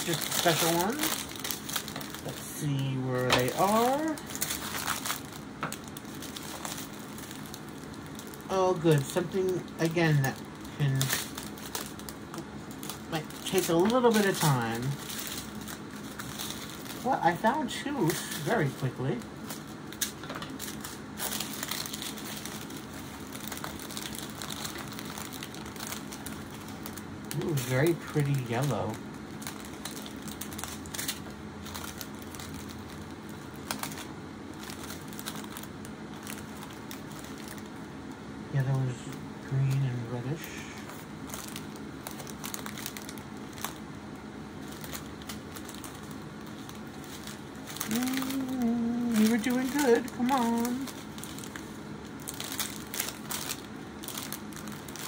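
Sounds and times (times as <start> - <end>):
plastic bags crinkling: 0.0 - 38.2, 39.6 - 55.0.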